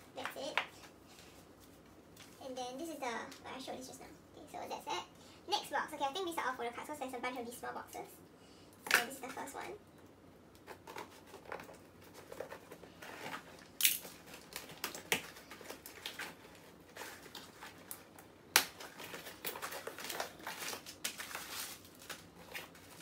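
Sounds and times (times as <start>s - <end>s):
packing rustling: 10.6s - 23.0s.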